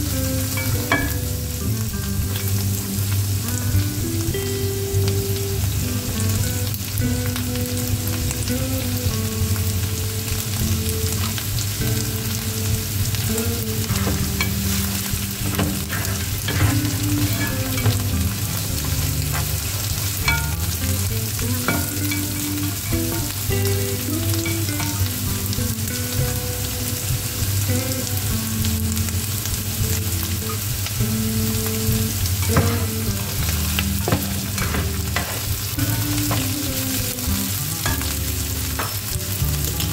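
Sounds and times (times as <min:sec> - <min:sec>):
food sizzling in oil: 0:00.0 - 0:39.9
spatula scraping pan: 0:13.6 - 0:23.5.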